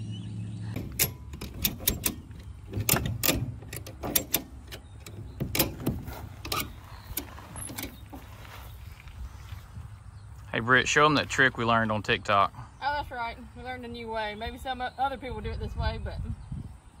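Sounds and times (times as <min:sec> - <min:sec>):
ratchet strap clicking: 0:00.8 - 0:08.0.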